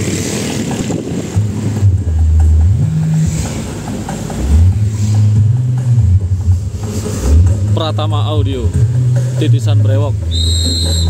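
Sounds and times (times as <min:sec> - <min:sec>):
deep low engine tones: 0:00.0 - 0:11.0
motorcycle engine: 0:00.0 - 0:11.0.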